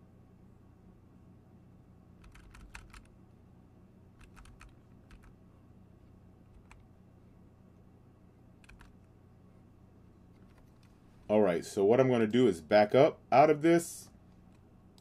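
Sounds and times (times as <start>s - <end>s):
low steady hum: 0.0s - 15.0s
computer keyboard clicking: 2.2s - 3.1s, 4.2s - 5.3s, 6.5s - 6.8s, 8.6s - 8.9s.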